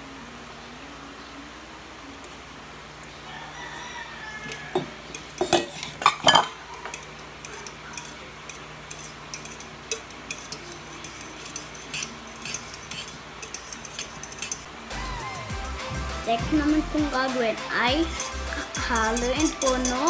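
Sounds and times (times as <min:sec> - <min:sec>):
utensil clinking against metal bowl: 0:04.4 - 0:14.7, 0:17.2 - 0:20.0.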